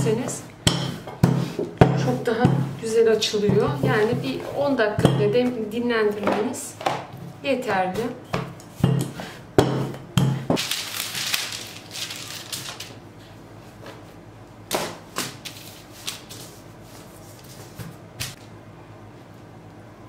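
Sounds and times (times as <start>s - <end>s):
baking paper rustling and crinkling: 10.6s - 14.1s, 15.2s - 18.4s.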